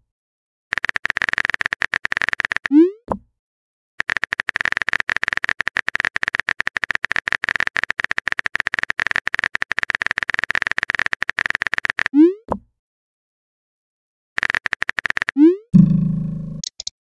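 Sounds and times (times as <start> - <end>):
rising bloop tone: 15.4 - 16.6
electronic key clicks: 16.6 - 16.9.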